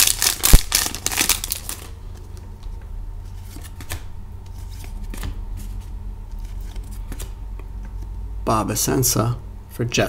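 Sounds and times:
wrapper crinkling as torn open: 0.0 - 1.9
cards being flipped through: 3.3 - 8.0.

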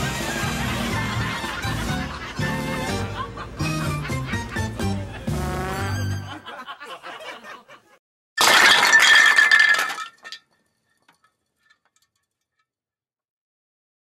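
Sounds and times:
comedy show music: 0.0 - 7.6.

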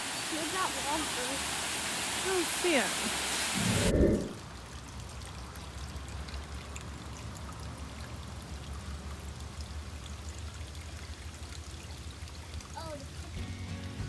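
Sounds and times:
water pouring into pond: 0.0 - 14.0
low rumble: 3.6 - 4.5.

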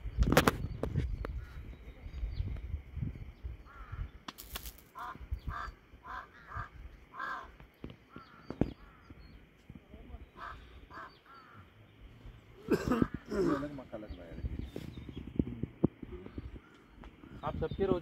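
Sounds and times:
bird calling: 3.6 - 18.0.

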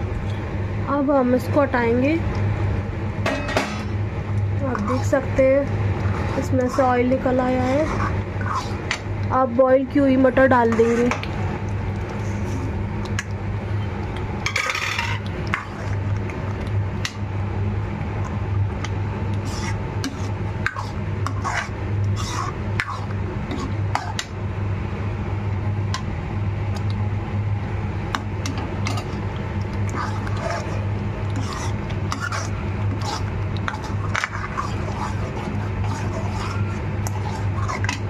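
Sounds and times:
steady low hum: 0.0 - 38.0
metal spoon scraping a pan: 4.7 - 5.3, 6.1 - 9.0, 10.7 - 11.2, 14.5 - 15.8, 19.4 - 24.3, 29.9 - 38.0.

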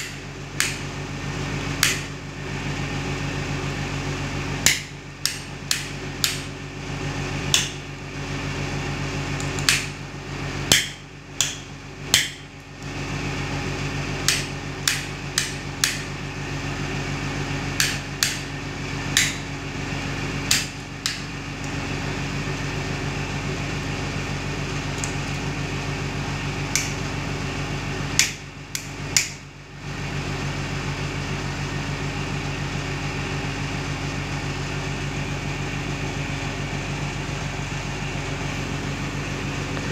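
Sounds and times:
rocker switches clicking: 0.0 - 0.8, 1.8 - 2.1, 4.6 - 6.5, 9.4 - 9.9, 14.2 - 16.1, 17.8 - 18.5, 20.5 - 21.8, 26.7 - 27.0, 28.2 - 29.4
steady low hum: 0.0 - 39.9.

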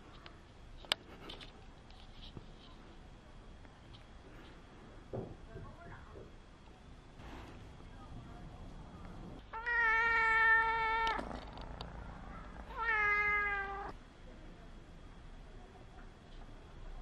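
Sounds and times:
kitten meowing: 12.7 - 13.9.

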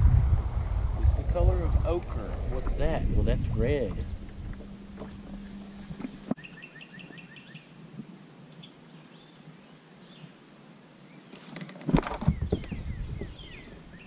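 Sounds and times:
birds chirping: 0.6 - 7.7, 11.0 - 14.0
knocks and thumps: 11.7 - 13.4.

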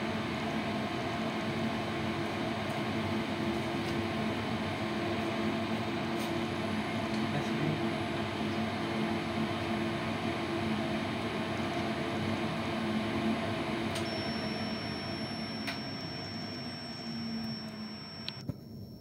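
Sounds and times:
tumble dryer running: 0.0 - 18.4
thin high steady tone: 14.0 - 18.4.

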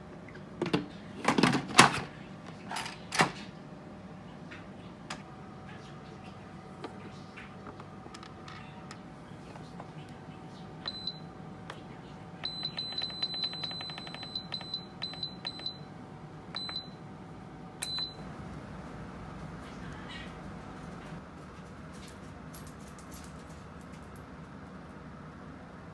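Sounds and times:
pressure cooker panel beeps: 10.9 - 11.3, 12.4 - 15.9, 16.6 - 17.0, 17.8 - 18.2.

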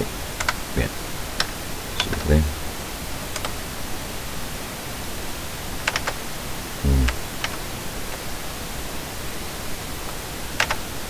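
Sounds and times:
microphone hiss: 0.0 - 11.0
keyboard and mouse clicks: 0.4 - 0.6, 1.4 - 2.4, 3.3 - 3.6, 5.8 - 6.2, 6.9 - 8.2, 10.6 - 10.8.

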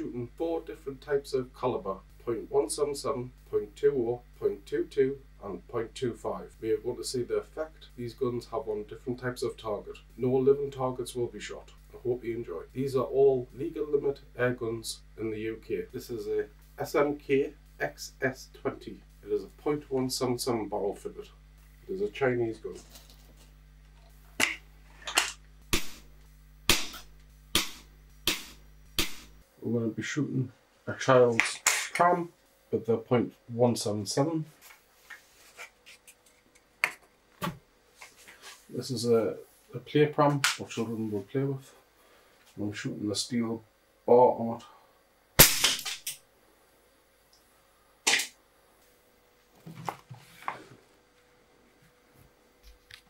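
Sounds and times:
air rifle shots: 45.4 - 46.1.

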